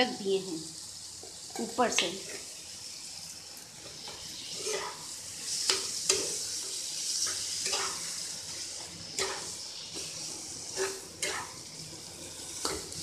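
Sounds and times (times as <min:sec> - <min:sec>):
filling sizzling in a pan: 0:00.0 - 0:13.0
spatula scraping and knocking pan: 0:05.6 - 0:08.1, 0:09.2 - 0:11.6, 0:12.6 - 0:13.0.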